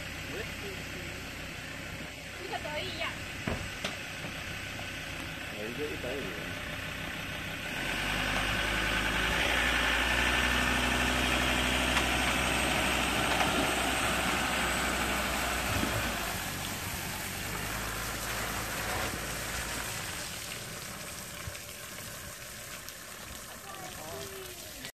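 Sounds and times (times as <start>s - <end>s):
pickup truck engine under load: 0.0s - 24.2s
water running off hull: 0.0s - 24.9s.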